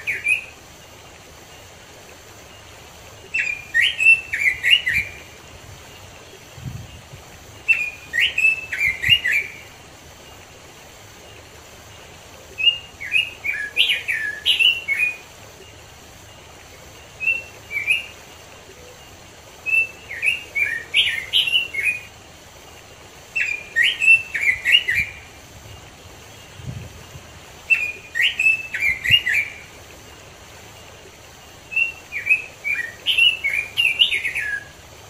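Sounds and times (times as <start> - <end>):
bird singing warbling whistles: 0.0 - 0.6, 3.3 - 6.0, 7.6 - 9.8, 12.6 - 15.3, 17.0 - 19.0, 19.6 - 22.1, 23.4 - 25.3, 27.6 - 29.7, 31.6 - 34.8.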